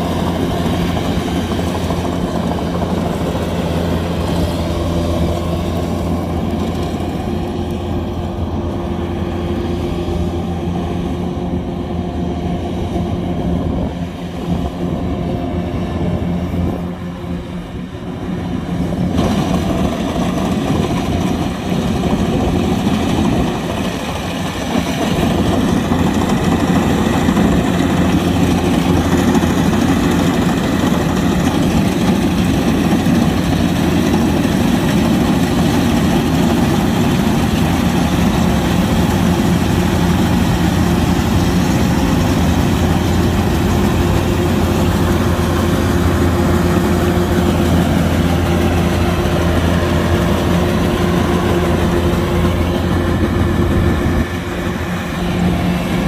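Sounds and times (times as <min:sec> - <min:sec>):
diesel engine running: 0:00.0 - 0:56.0
machinery clatter: 0:18.9 - 0:56.0.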